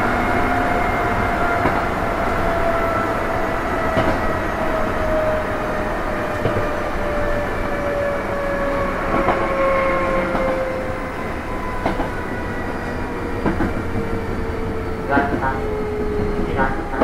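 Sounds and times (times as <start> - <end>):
traction motors whining: 0.0 - 17.0
wheels rumbling on rail: 0.0 - 17.0
rail-joint clicks: 3.8 - 4.4, 6.2 - 7.0, 9.1 - 9.5, 11.8 - 12.2, 12.8 - 17.0.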